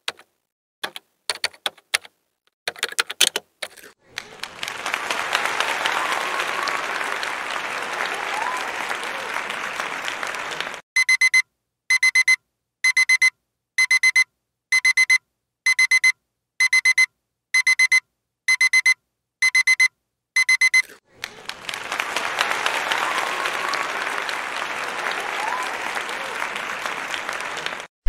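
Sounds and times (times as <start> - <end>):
applause: 4.1 - 10.8, 21.1 - 27.9
electronic alarm clock beeping: 11.0 - 21.0.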